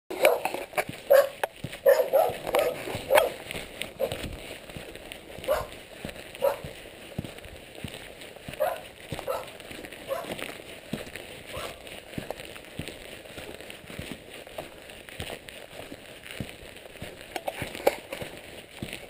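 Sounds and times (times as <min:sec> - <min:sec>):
dog barking: 0:00.2 - 0:03.4, 0:04.0 - 0:04.2, 0:05.4 - 0:05.8, 0:06.4 - 0:06.7, 0:08.6 - 0:10.4, 0:11.5 - 0:11.8.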